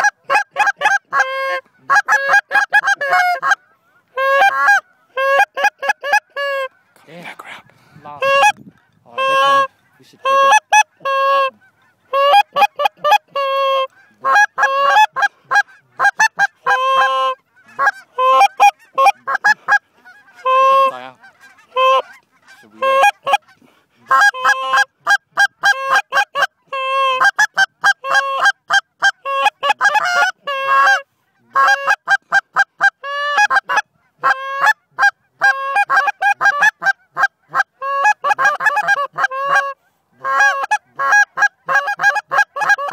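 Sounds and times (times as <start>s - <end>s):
goose call honks and clucks: 0.0s - 42.9s.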